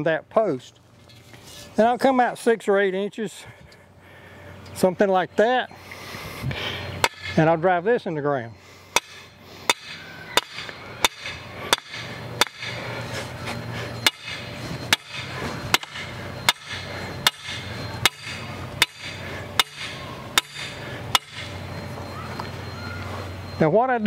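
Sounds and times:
hammer striking metal post: 7.0s - 7.5s, 8.9s - 12.9s, 14.0s - 21.6s.

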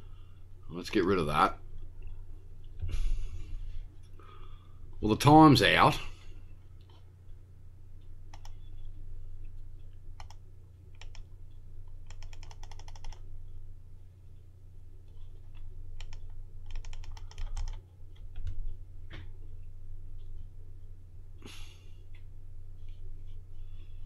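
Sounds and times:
steady low hum: 0.0s - 24.0s
computer keyboard keystrokes: 8.3s - 8.9s, 10.2s - 13.3s, 15.1s - 18.7s.

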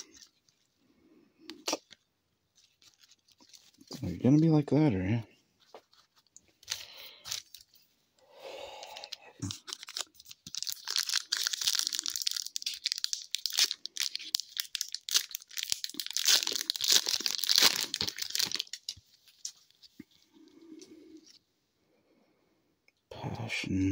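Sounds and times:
foil wrapper tearing and crinkling: 0.0s - 0.4s, 1.5s - 4.6s, 9.0s - 19.6s.

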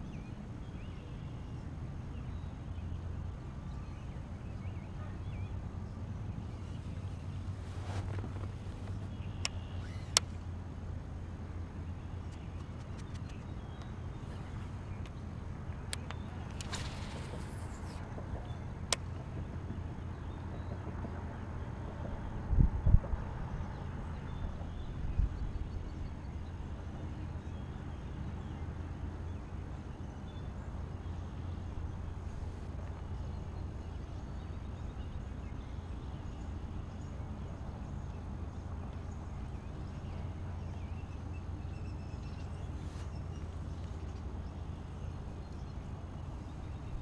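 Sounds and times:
bird chirping: 8.0s - 10.4s, 11.8s - 18.7s
reel spool whirring: 8.7s - 10.6s, 16.3s - 18.0s.

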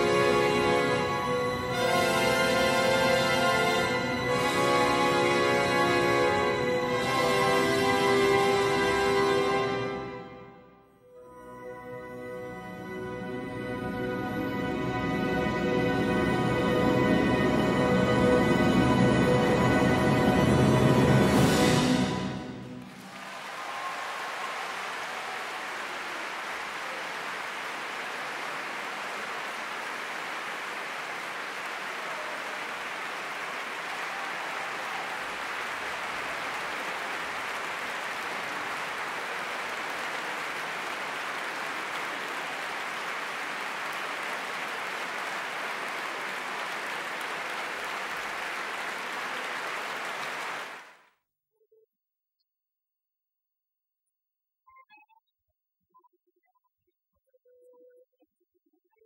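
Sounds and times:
audience applauding: 0.0s - 10.1s, 21.4s - 51.1s.

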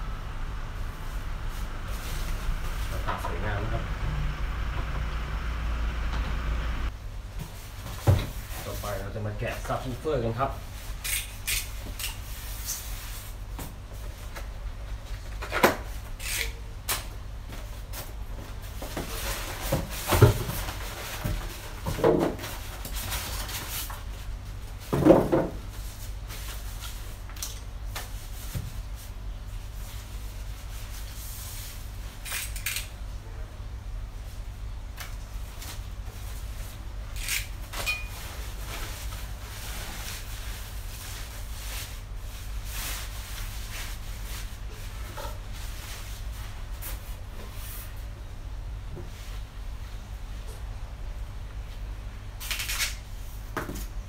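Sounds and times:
plastic wrapping rustling: 35.4s - 47.7s.

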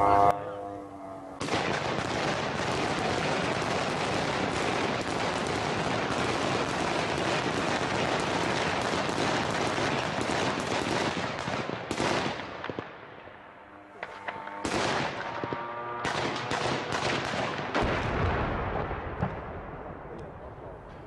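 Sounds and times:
rapid automatic gunfire: 1.4s - 12.4s, 14.6s - 18.1s.

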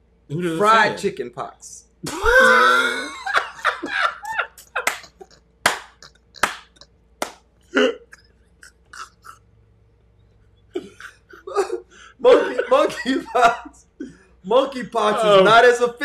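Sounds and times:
men laughing: 2.0s - 6.9s, 7.8s - 9.5s, 10.7s - 15.6s.

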